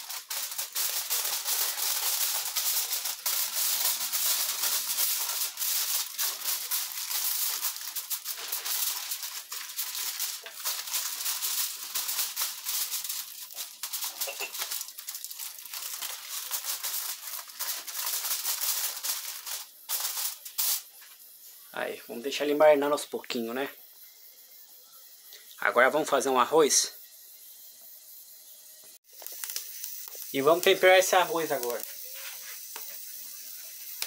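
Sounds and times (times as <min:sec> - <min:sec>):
aluminium foil crinkling: 0:00.0 - 0:21.2, 0:29.1 - 0:34.0.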